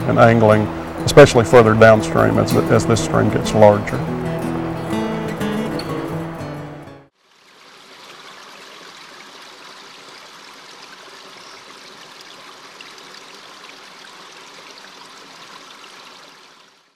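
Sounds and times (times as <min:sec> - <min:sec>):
river flowing over rocks: 0:00.0 - 0:02.8.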